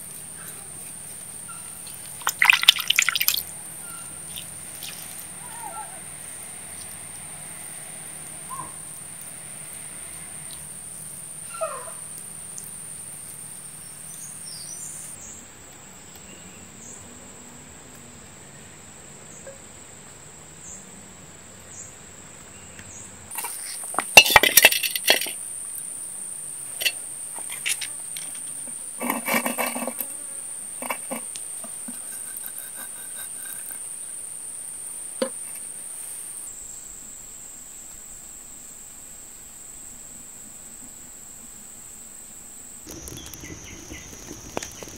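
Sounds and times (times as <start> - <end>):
insects chorus: 0.0 - 44.9
frying pan scraping on stove: 26.7 - 30.2, 30.8 - 33.8
light knocks and scrapes: 26.8 - 30.2, 30.8 - 33.8.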